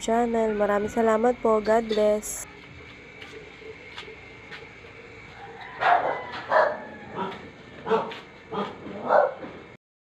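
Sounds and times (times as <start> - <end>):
dog barking: 5.8 - 9.5.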